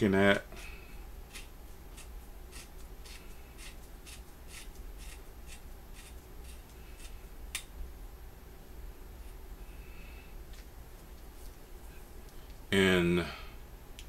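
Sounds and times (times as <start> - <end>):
hands rubbing small metal part: 1.3 - 7.2.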